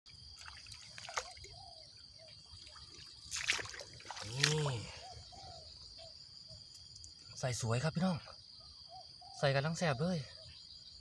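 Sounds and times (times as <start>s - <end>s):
insect whine: 0.1s - 11.0s
water splashing and dripping: 0.2s - 1.6s, 2.4s - 5.0s.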